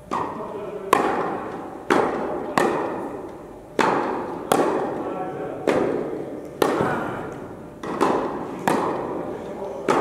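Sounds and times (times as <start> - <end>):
tennis ball bouncing on court: 0.9 - 3.1, 3.8 - 5.0, 5.6 - 7.0, 7.8 - 9.2
tennis ball struck by rackets: 0.9 - 3.2, 3.8 - 5.0, 5.6 - 7.2, 7.8 - 9.2.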